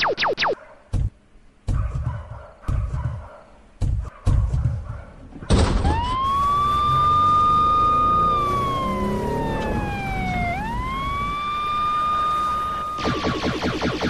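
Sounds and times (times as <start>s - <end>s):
siren wailing: 5.8s - 14.0s.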